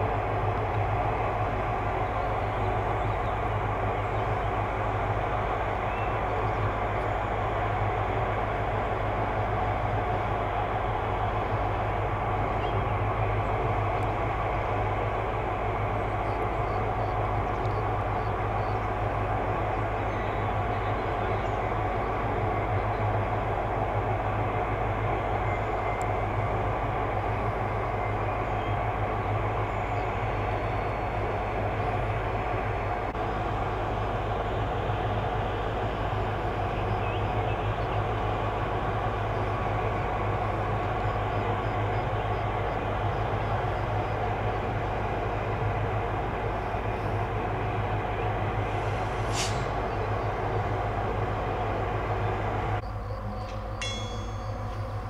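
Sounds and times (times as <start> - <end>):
electric locomotive hum: 0.0 - 55.0
air release hiss: 48.8 - 49.8.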